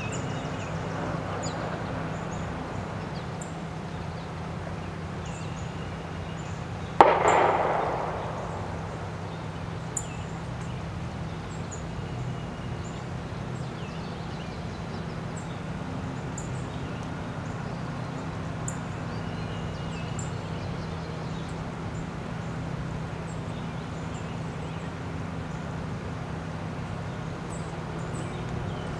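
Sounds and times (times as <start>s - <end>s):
small birds chirping: 0.0s - 28.9s
steady low hum: 0.0s - 28.9s
sharp loud bang: 7.0s - 9.8s.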